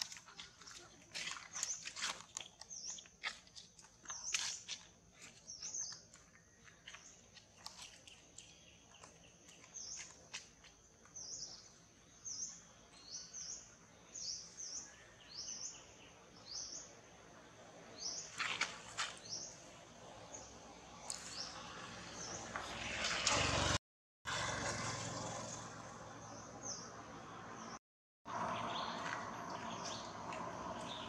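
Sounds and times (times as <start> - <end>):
rustle: 18.0 - 25.9.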